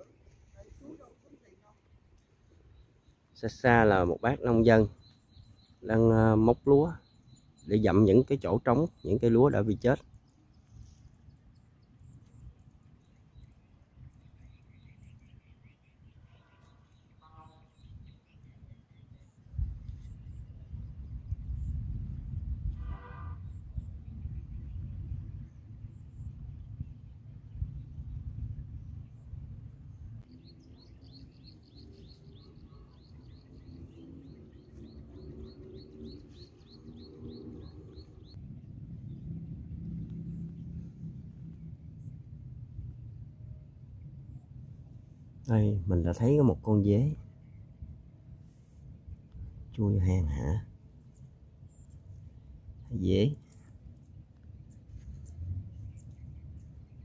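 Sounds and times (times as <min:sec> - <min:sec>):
high bird chirps: 0:02.2 - 0:21.8, 0:30.3 - 0:38.4
faint low rumble: 0:23.5 - 0:57.0.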